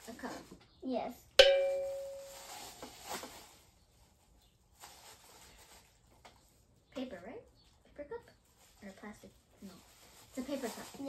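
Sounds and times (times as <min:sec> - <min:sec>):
bell-like ding: 0:01.4 - 0:02.4
plastic bag crinkling: 0:01.5 - 0:06.2, 0:08.4 - 0:11.0.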